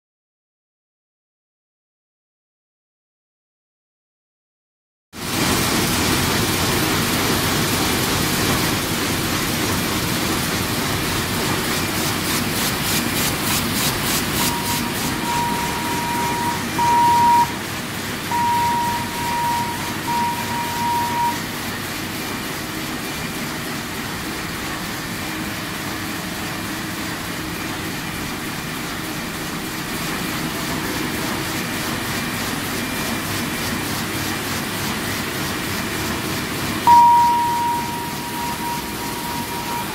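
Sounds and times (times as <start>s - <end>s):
printing press running: 5.2s - 39.9s
high electronic beeps: 14.3s - 17.6s, 18.3s - 21.4s, 36.9s - 39.9s.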